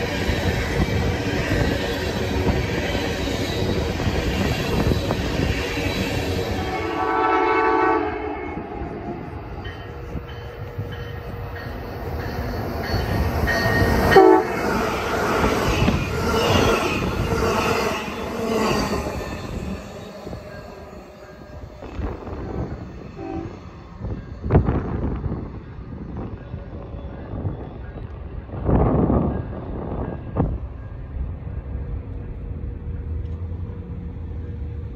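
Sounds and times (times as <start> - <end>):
train wheels on rails: 0.0 - 34.9
train horn blast: 6.6 - 9.3, 14.1 - 14.6, 23.1 - 23.7.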